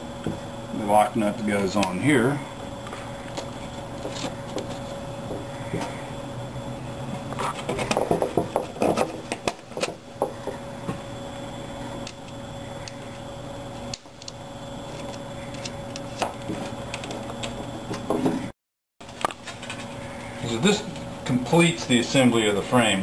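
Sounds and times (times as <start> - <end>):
steady hum: 0.0 - 23.0
wooden frame knocks and rattles: 7.6 - 10.6.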